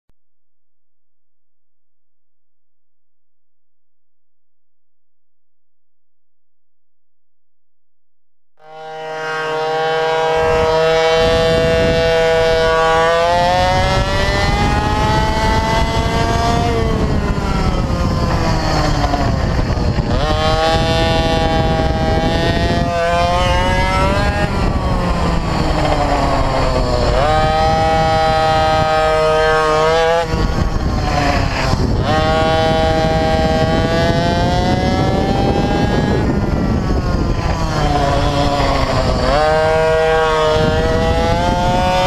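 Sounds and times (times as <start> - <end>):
mini bike engine revving: 8.6 - 42.0
wind rushing over microphone: 9.0 - 42.0.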